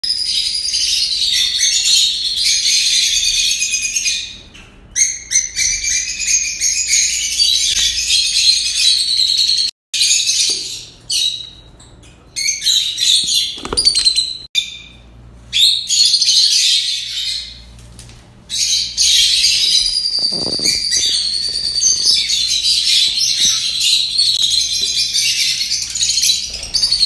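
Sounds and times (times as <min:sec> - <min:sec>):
parrots chirping and chattering: 0:18.5 - 0:27.0.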